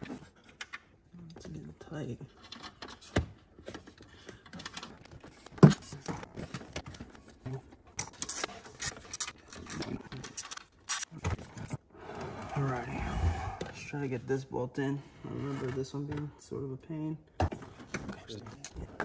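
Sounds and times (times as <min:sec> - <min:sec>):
wiring harness clicks and rattles: 0:02.3 - 0:11.7.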